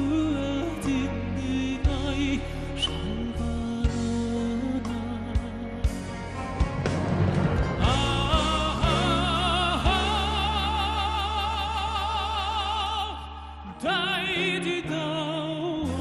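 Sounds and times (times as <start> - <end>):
man singing with vibrato: 0.0 - 6.5, 7.8 - 16.0
plucked and bowed string ensemble: 0.0 - 12.2
low drone: 0.0 - 14.9.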